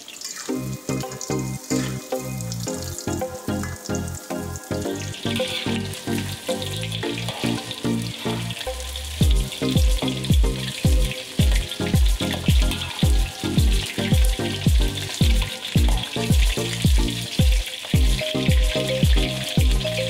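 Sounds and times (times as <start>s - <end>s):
chicken deep-frying in oil: 0.0s - 20.0s
background music with beat: 0.4s - 20.0s
kick drum thumps: 9.2s - 19.8s.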